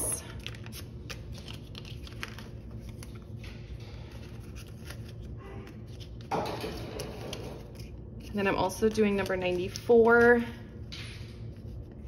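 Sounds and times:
paper bills rustling: 0.3s - 6.3s, 7.0s - 10.4s.

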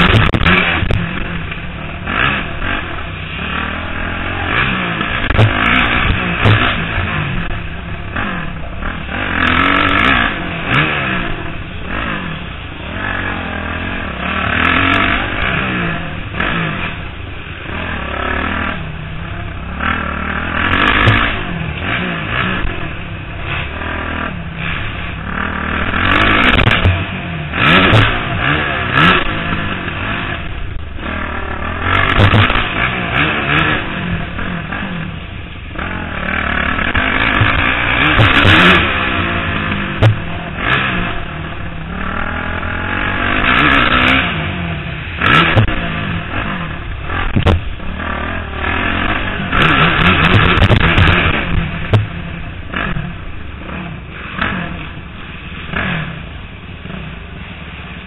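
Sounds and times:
clatter from riding over dirt: 0.0s - 1.6s, 5.0s - 7.2s, 26.1s - 27.1s, 31.9s - 33.9s, 35.8s - 39.0s, 47.2s - 47.7s, 48.7s - 52.1s
motocross bike engine revving: 0.0s - 58.0s
sharp knock: 47.3s - 47.6s.

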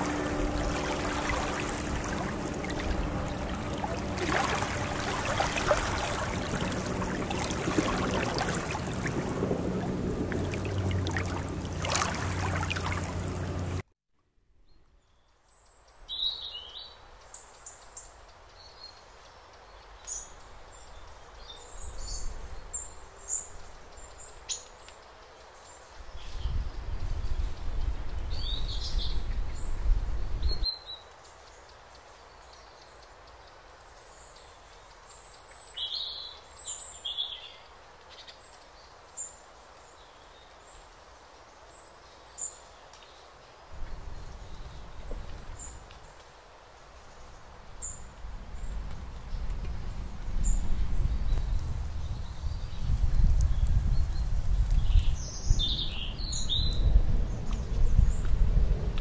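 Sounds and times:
loud low rumble: 0.0s - 13.8s
lake water: 0.0s - 13.9s, 40.2s - 59.0s
faint woodland background: 0.0s - 59.0s
small birds chirping: 50.4s - 58.4s.

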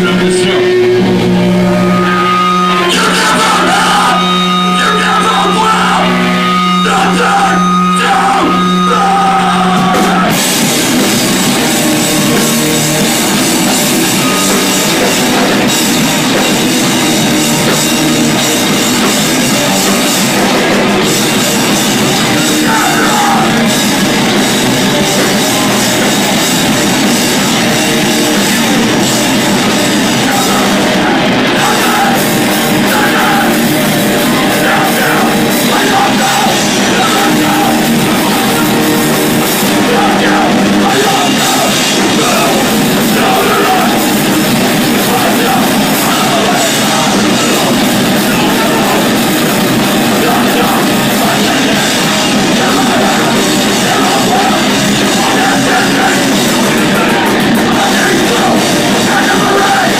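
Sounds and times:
heavy rock band playing loud: 0.0s - 59.9s
vocalist shouting into microphone: 1.8s - 10.4s, 22.2s - 23.7s.

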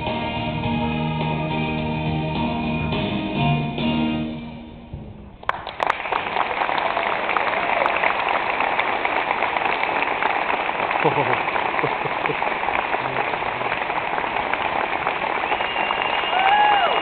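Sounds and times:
audience applauding: 5.4s - 17.0s.

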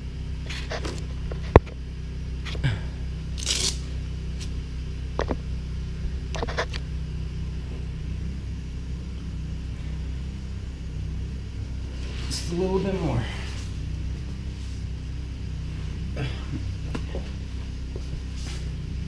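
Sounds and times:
steady low hum: 0.0s - 19.0s
scraping rustle on towel: 18.2s - 18.8s.

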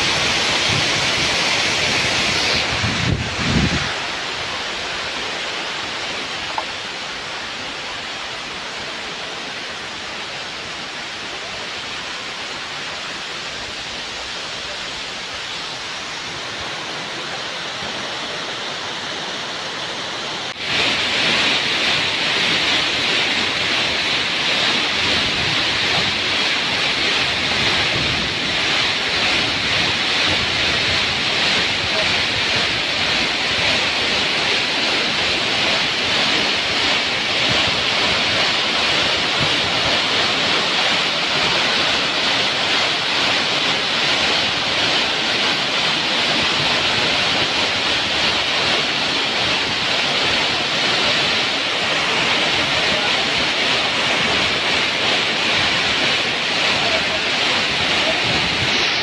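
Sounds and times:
waterfall splashing onto rock: 20.5s - 59.0s.

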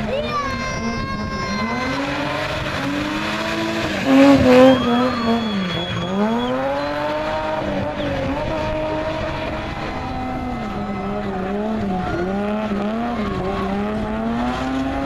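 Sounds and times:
car engine revving: 0.0s - 15.0s
tyres squealing: 0.2s - 8.4s.

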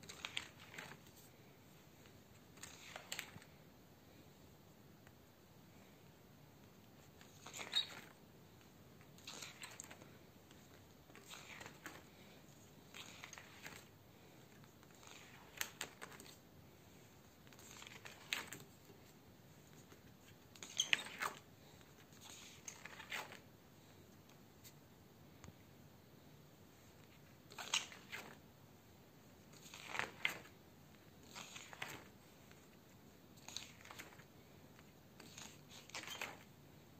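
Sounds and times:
paper pages turning: 0.0s - 1.4s, 2.0s - 3.6s, 7.0s - 8.2s, 9.0s - 13.9s, 14.5s - 16.4s, 17.2s - 23.4s, 27.0s - 28.4s, 29.5s - 32.7s, 33.4s - 36.5s.

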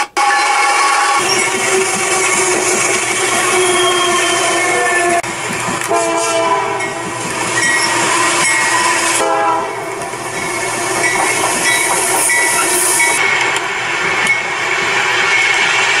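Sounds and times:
locomotive horns: 0.0s - 10.1s.

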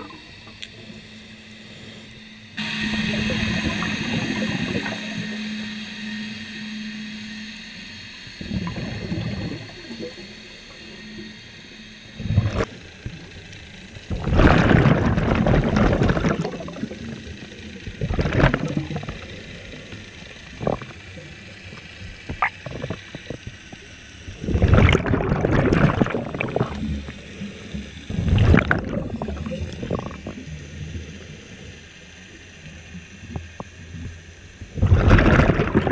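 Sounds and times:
underwater bubbling exhalations: 14.1s - 17.0s, 24.4s - 26.9s, 28.1s - 30.4s, 34.8s - 35.9s.

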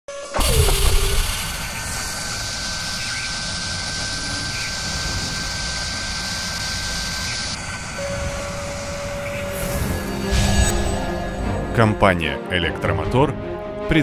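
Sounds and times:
machine spindle boring into metal: 0.1s - 11.1s
thin high whine: 0.1s - 11.8s
rushing hiss: 0.3s - 10.7s.

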